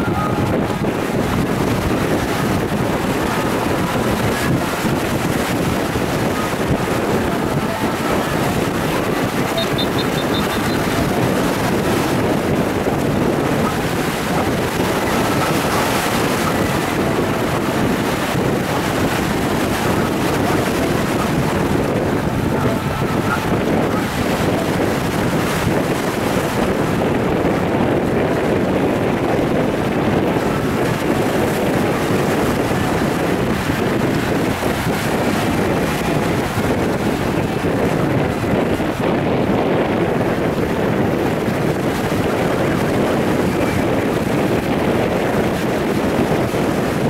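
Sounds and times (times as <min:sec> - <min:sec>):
small sea waves: 0:00.0 - 0:47.0
wind buffeting microphone: 0:00.0 - 0:47.0.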